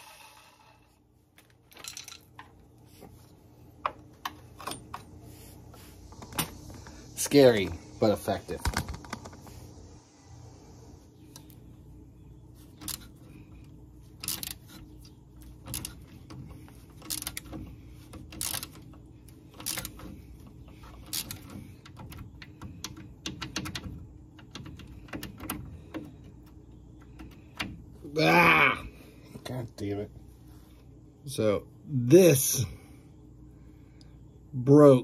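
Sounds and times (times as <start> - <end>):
ratcheting wrench clicking: 14.2 - 14.8, 15.4 - 20.2, 20.8 - 23.8.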